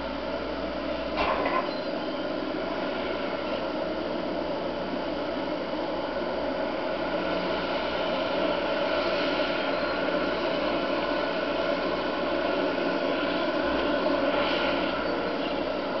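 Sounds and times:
excavator diesel engine and hydraulics: 0.0s - 16.0s.

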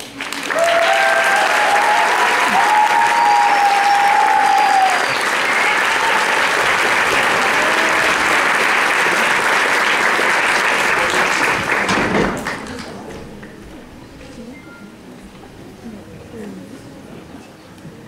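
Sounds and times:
audience applauding: 0.0s - 13.5s
cheers: 0.2s - 11.4s.

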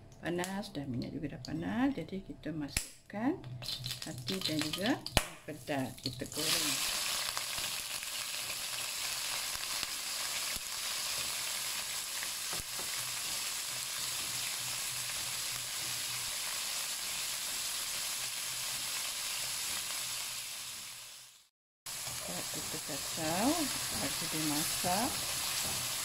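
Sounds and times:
food sizzling in hot oil: 3.6s - 26.0s.

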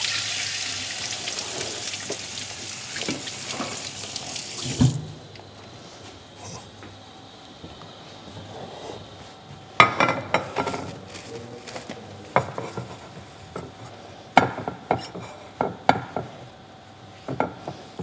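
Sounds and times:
dishes clattering on counter: 9.8s - 10.9s, 12.3s - 13.8s, 14.4s - 16.4s.

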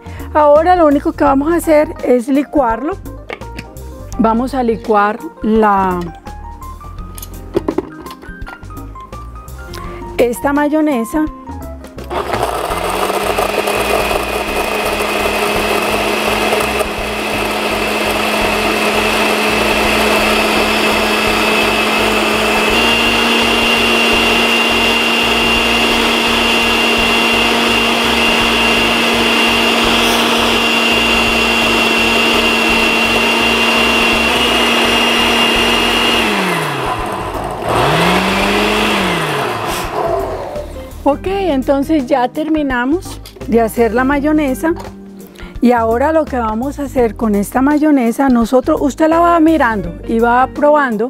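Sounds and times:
blender motor running: 12.0s - 41.0s.

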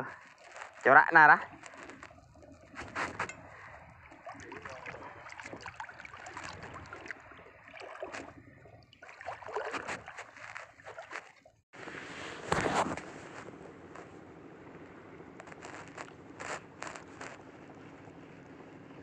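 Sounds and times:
seawater sloshing and lapping: 0.0s - 14.0s
small splashes and knocks: 1.5s - 11.6s.

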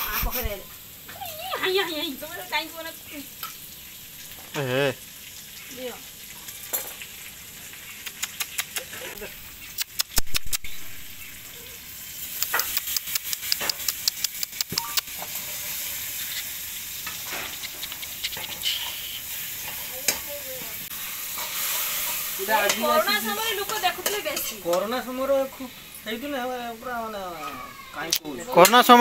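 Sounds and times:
curry sizzling in a pan: 0.0s - 29.0s
metal spatula scraping a pan: 15.1s - 25.7s.

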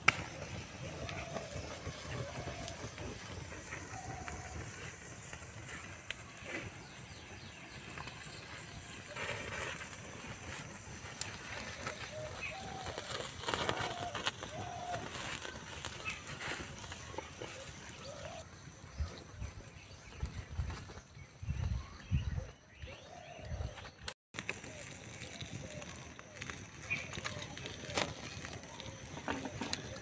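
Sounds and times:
burning wood cracking: 0.0s - 18.9s, 24.0s - 30.0s.

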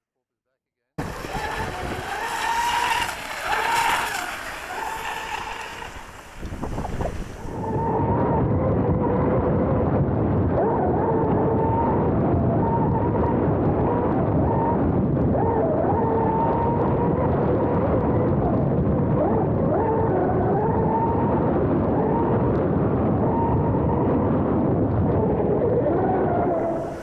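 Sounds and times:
electric motor whining: 1.0s - 8.0s
rush of water and wind: 1.0s - 21.2s, 23.2s - 27.0s.

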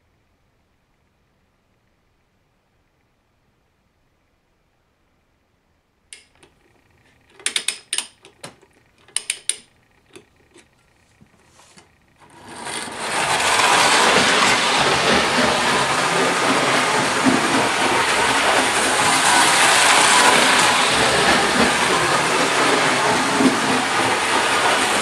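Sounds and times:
metal clicks and knocks: 6.2s - 10.8s
clockwork motor whirring: 6.2s - 25.0s.

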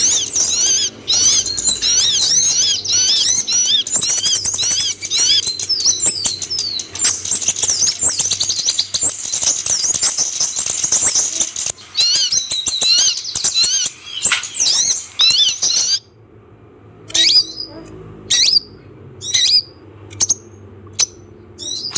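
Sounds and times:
bird singing chattering song: 0.0s - 16.2s, 17.1s - 21.9s.

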